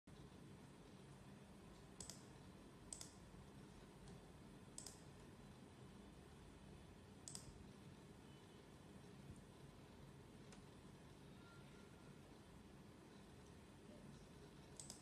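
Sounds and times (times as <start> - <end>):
computer mouse clicking: 1.7 - 3.2, 4.0 - 5.2, 7.2 - 7.6, 10.4 - 10.7, 14.1 - 15.0.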